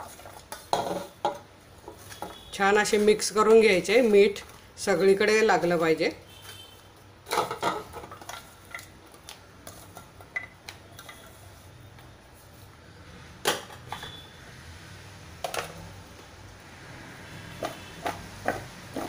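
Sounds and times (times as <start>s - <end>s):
kitchen bowls clinking and knocking: 0.0s - 4.5s, 7.2s - 8.9s, 9.7s - 11.4s, 17.6s - 19.0s.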